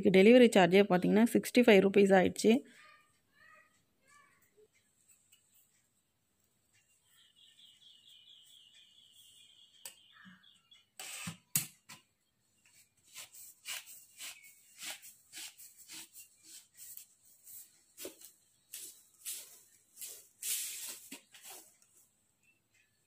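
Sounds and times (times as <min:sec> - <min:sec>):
broom bristles swishing: 0:18.8 - 0:21.7.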